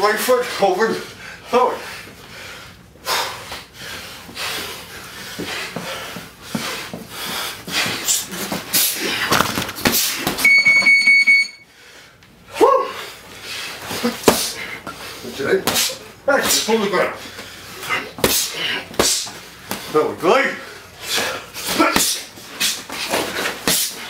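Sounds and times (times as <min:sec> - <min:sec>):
hard breathing: 0:00.4 - 0:10.3, 0:11.6 - 0:24.0
high electronic timer beep: 0:10.4 - 0:11.6
gloved punches landing: 0:14.0 - 0:14.6, 0:15.6 - 0:16.7.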